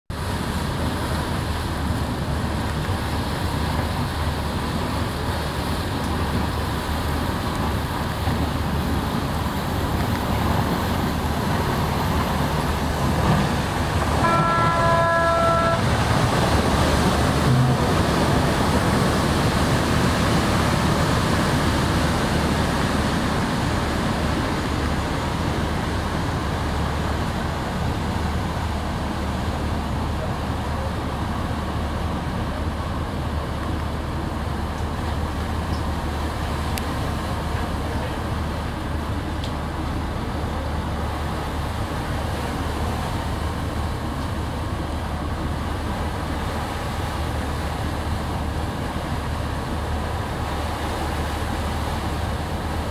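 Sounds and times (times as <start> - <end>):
boat engine hum: 0.1 - 52.9
rush of wind and water: 0.1 - 52.9
ship's horn: 13.2 - 18.5.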